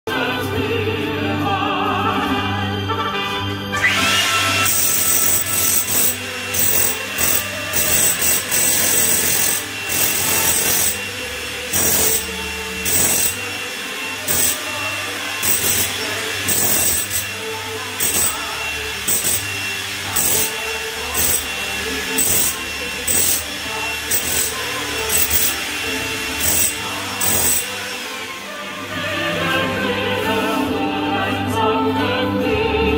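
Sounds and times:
demolition hammer chiseling concrete: 4.0 - 28.1.

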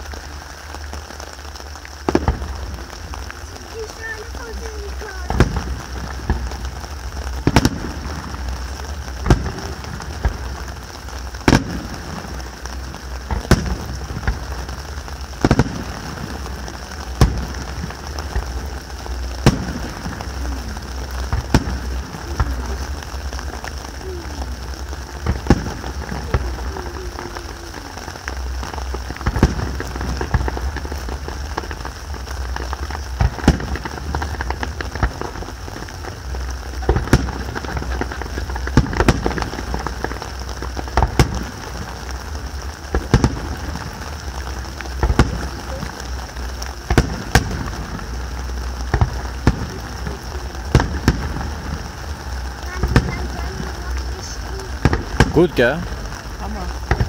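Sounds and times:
constant hiss: 0.0 - 57.0
distant firework bangs: 0.0 - 57.0
low rumble: 0.0 - 57.0.

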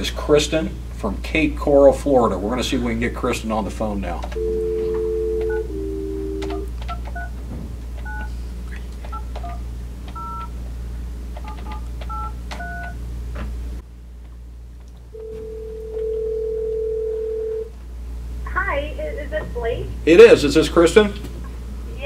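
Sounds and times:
telephone dial tone: 4.3 - 7.2, 15.2 - 17.7
telephone ringing tone: 4.4 - 6.7, 15.1 - 17.7
keypad beeps: 6.3 - 7.3, 8.0 - 8.3, 10.2 - 10.5, 11.4 - 13.0.

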